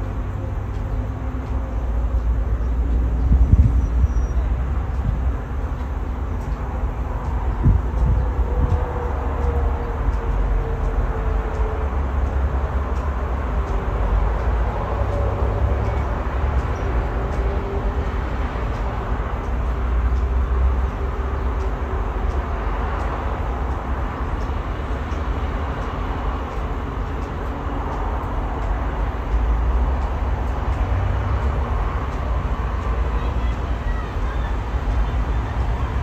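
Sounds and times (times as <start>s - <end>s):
distant city traffic hum: 0.0s - 36.0s
wind buffeting microphone: 0.0s - 36.0s.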